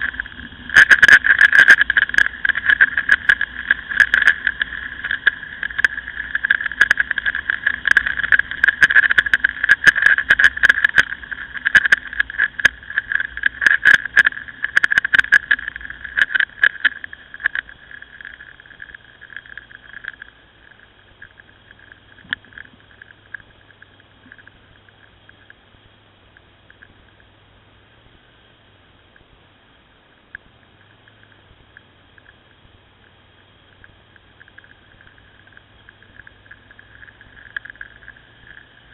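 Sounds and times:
sharp clicks: 0:00.0 - 0:25.6.

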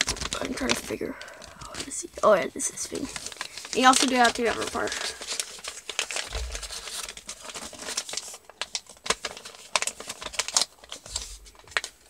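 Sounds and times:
paper being folded and creased: 0:00.0 - 0:12.0.

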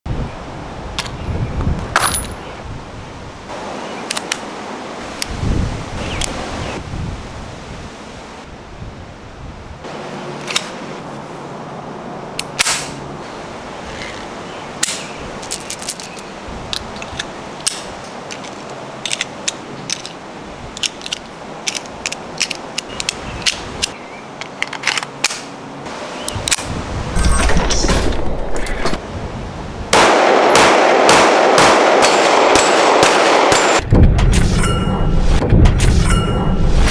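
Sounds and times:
pistol metallic clicks: 0:14.8 - 0:20.2, 0:20.8 - 0:25.5.

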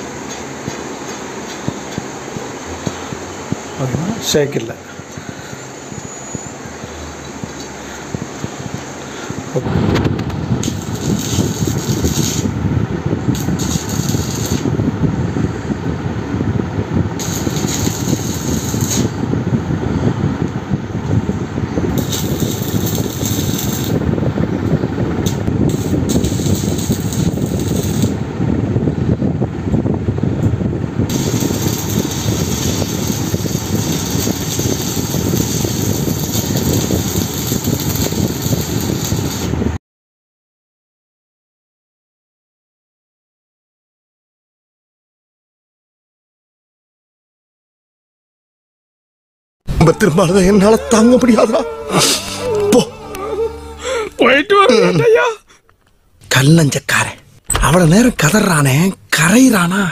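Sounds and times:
arc welding crackling and hissing: 0:00.0 - 0:19.8, 0:20.4 - 0:28.5, 0:31.0 - 0:39.8, 0:49.8 - 0:53.0, 0:55.8 - 0:59.8
steady low rumble: 0:01.6 - 0:39.8, 0:49.7 - 0:54.6, 0:56.3 - 0:59.9.

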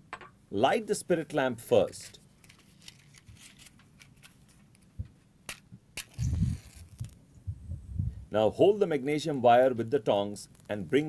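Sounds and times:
match striking matchbox: 0:05.5 - 0:07.2
low rumble: 0:06.3 - 0:08.3.

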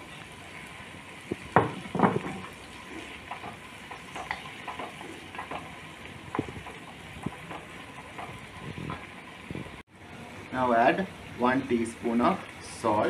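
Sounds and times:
vegetables sizzling in butter: 0:00.0 - 0:13.0
wooden spatula scraping a pot: 0:01.8 - 0:09.1.

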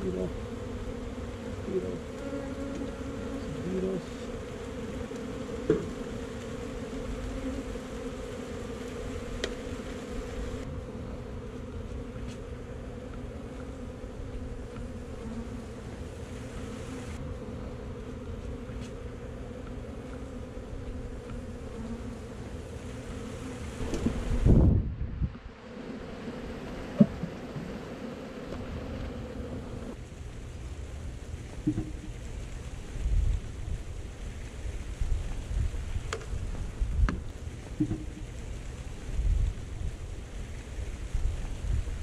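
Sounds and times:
bees buzzing: 0:00.0 - 0:30.0.

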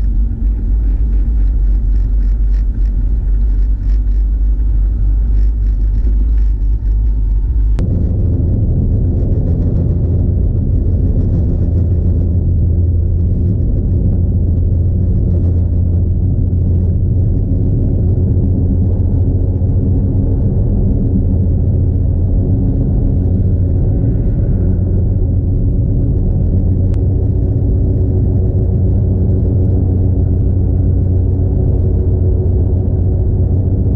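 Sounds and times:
car engine and tyres on snow: 0:00.0 - 0:33.9.

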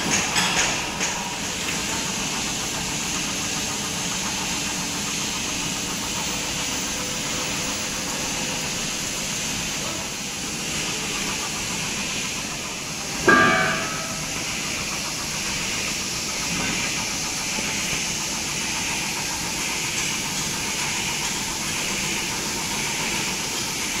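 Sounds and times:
workshop background hiss: 0:00.0 - 0:24.0
loud ringing metal knock: 0:13.2 - 0:14.6.

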